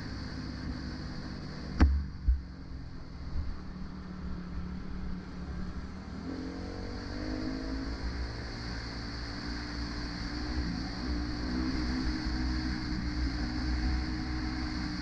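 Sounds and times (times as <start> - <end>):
low thump: 1.8 - 2.5.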